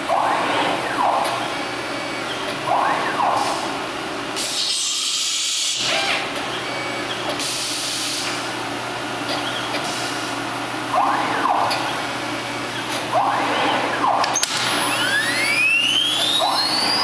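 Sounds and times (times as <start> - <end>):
steady machine hum: 0.0 - 5.0, 8.2 - 17.0
motors whining: 11.2 - 17.0.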